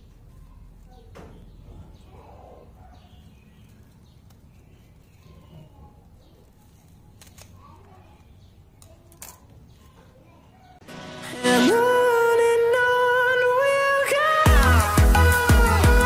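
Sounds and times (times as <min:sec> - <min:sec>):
faint bird calls: 0:00.1 - 0:09.0
shears snipping: 0:06.7 - 0:08.0.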